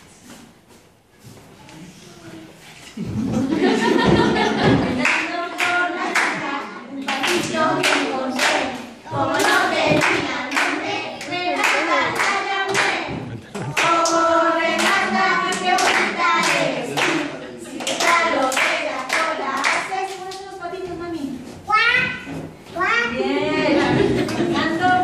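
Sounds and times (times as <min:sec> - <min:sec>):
children singing in unison: 0:04.4 - 0:20.0
children clapping hands: 0:05.0 - 0:20.4.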